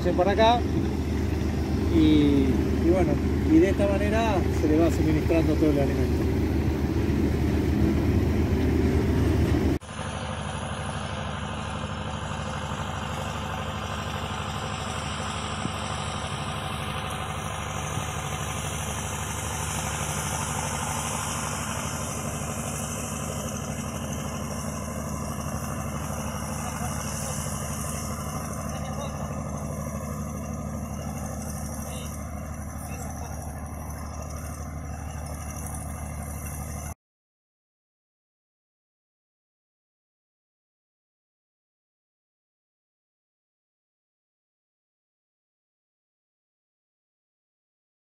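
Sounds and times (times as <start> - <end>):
engine hum: 0.0 - 37.0
feed mixer wagon running: 0.0 - 37.0.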